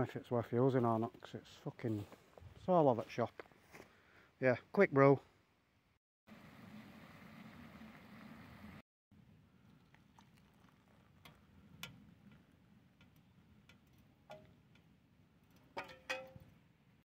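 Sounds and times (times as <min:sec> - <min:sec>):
water pouring: 0:09.6 - 0:11.9.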